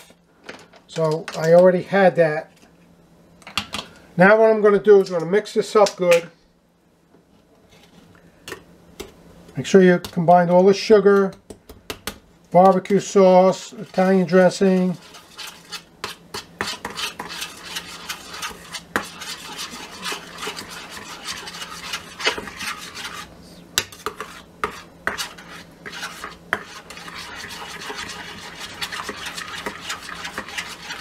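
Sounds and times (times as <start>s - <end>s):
spoon scraping metal bowl: 12.6s - 23.3s, 23.9s - 31.0s.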